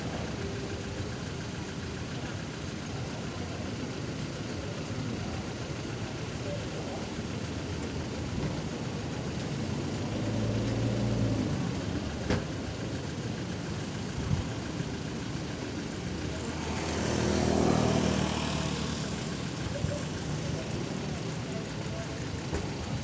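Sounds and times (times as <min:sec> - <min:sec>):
road noise: 0:00.0 - 0:23.0
vehicles passing: 0:06.1 - 0:14.5, 0:15.1 - 0:23.0.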